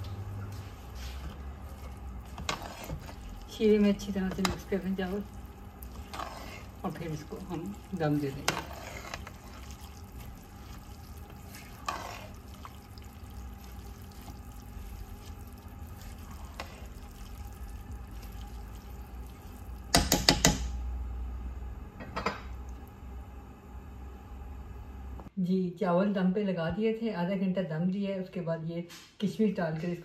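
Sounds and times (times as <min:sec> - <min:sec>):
spatula stirring wet rice: 0:00.0 - 0:20.2
spatula knocking on pan: 0:19.9 - 0:20.7.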